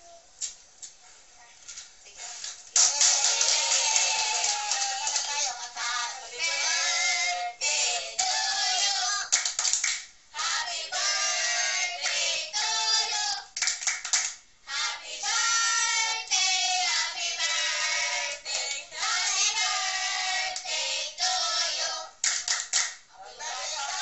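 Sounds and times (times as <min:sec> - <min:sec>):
hand claps: 0:02.7 - 0:05.5, 0:09.3 - 0:10.1, 0:13.6 - 0:14.4, 0:22.2 - 0:23.0
high-pitched voices singing: 0:02.8 - 0:09.4, 0:10.4 - 0:13.6, 0:14.7 - 0:22.2, 0:23.1 - 0:24.0.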